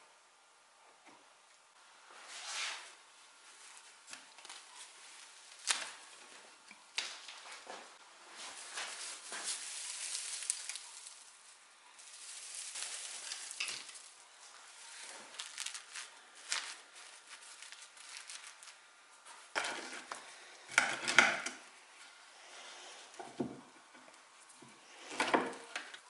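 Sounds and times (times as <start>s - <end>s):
dry stuffing rustling and crackling: 3.4s - 20.0s.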